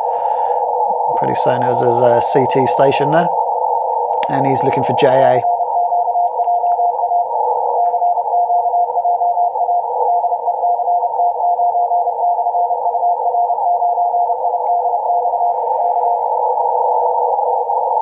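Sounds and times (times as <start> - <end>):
radio hiss: 0.0 - 5.6, 14.2 - 18.0.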